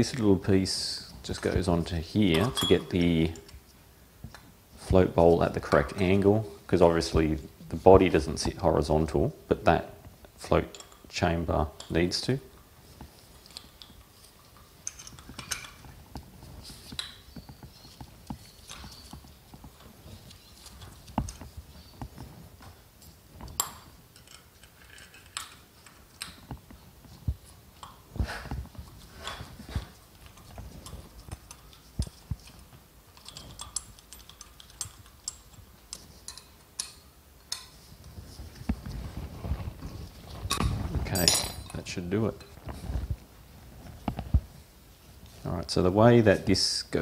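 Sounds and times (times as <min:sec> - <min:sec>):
small metal parts clicking and tapping: 0:10.7 - 0:11.1, 0:13.4 - 0:16.0, 0:23.0 - 0:26.8, 0:30.1 - 0:37.8.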